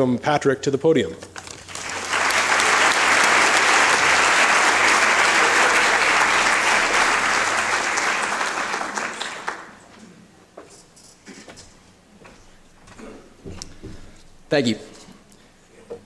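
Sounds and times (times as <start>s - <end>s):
audience applauding: 1.4s - 9.9s.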